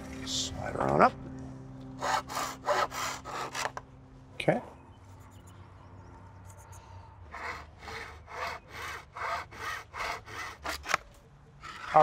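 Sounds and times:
hand saw cutting bamboo: 2.0 - 3.8, 7.3 - 12.0.

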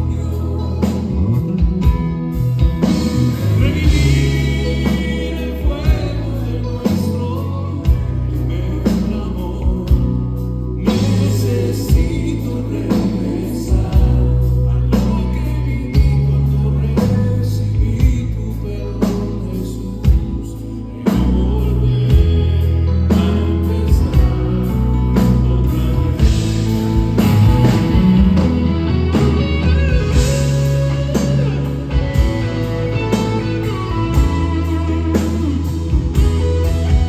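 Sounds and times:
drum kit beat: 0.0 - 8.2, 22.1 - 37.0
bass guitar: 0.0 - 37.0
electric guitars: 0.0 - 37.0
keyboards: 0.0 - 37.0
man singing lead vocals: 0.0 - 37.0
backing vocals: 2.9 - 37.0.

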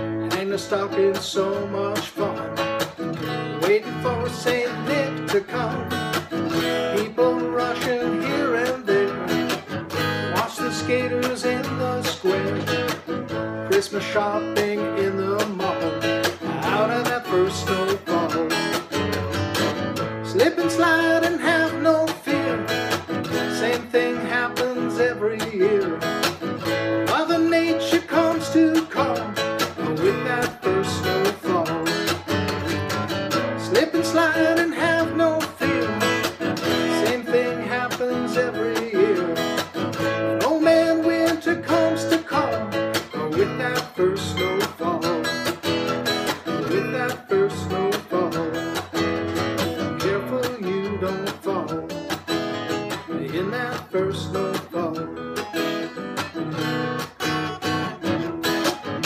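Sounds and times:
acoustic guitar strummed: 0.0 - 59.0.

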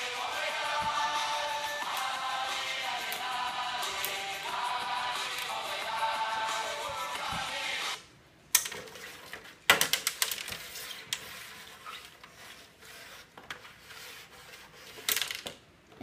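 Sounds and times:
plastic toy pieces clicking and clattering: 9.7 - 11.2, 14.9 - 15.6.

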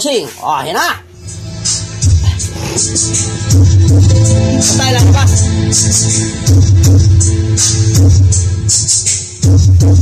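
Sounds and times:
loud music over speakers: 1.1 - 10.0
pulsing bass line: 2.8 - 7.6.

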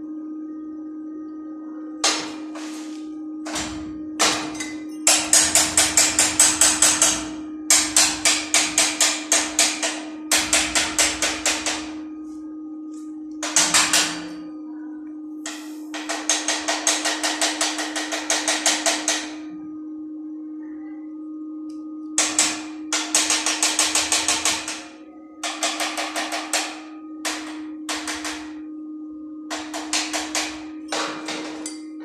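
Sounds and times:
chipping hammer tapping steel: 2.0 - 12.2, 12.9 - 14.5, 15.4 - 19.5, 21.7 - 28.7, 29.5 - 32.0.

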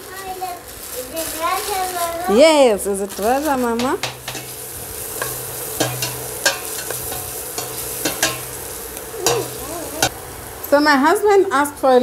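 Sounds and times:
vegetables sizzling in oil: 0.0 - 12.0
metal spoon scraping pot: 3.7 - 10.1.

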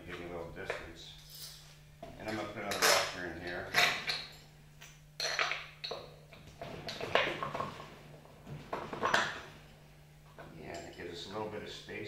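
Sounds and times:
steady low hum: 0.0 - 12.0
light metal clinks and knocks: 1.2 - 4.5.

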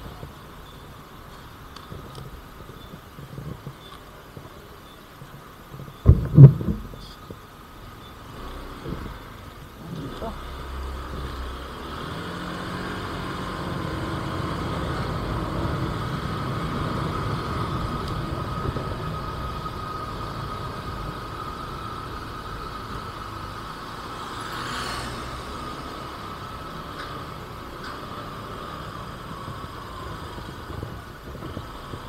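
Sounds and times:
wind and road noise: 0.0 - 32.0.

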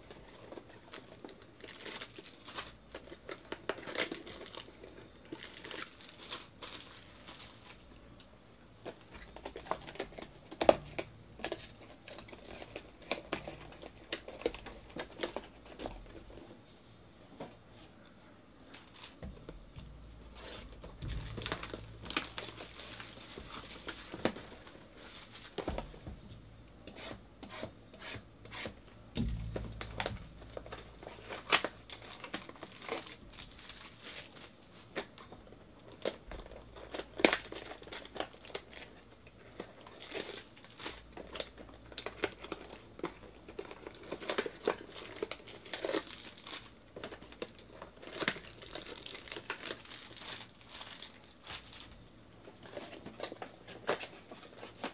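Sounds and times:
plastic wrapping crinkling and tearing: 0.0 - 16.5, 18.6 - 27.2, 28.5 - 54.9.

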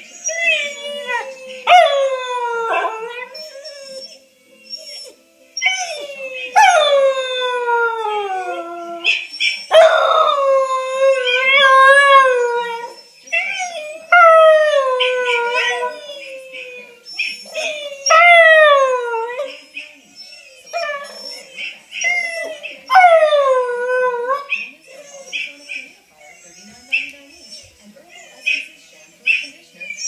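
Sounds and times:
dog howling: 0.1 - 28.7.

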